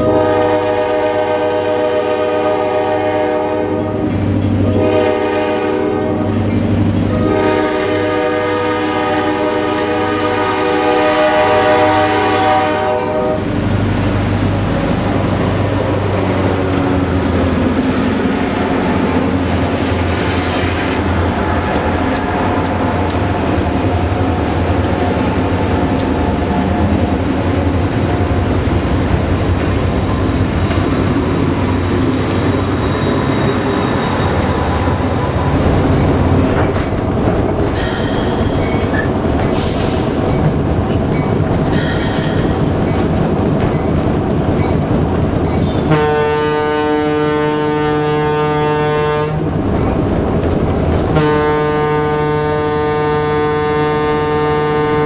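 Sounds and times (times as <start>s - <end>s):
train air horn blasts: 0.0s - 6.4s, 7.1s - 13.5s, 35.5s - 36.9s, 45.8s - 49.4s, 51.1s - 55.0s
diesel locomotives rumbling: 0.0s - 55.0s.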